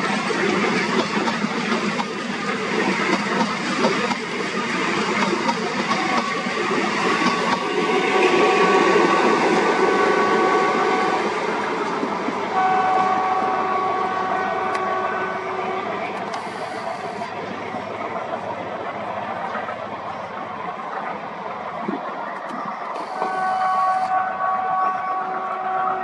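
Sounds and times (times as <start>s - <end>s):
diesel locomotive engines rumbling: 0.0s - 26.0s
train rattling on rails: 0.0s - 26.0s
locomotive horn chord: 9.8s - 11.2s, 12.5s - 16.0s, 23.2s - 26.0s.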